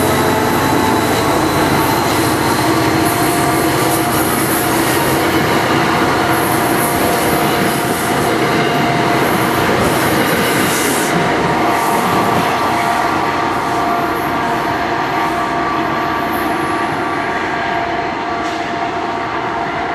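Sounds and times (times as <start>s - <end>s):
train wheels clattering on rails: 0.0s - 13.3s.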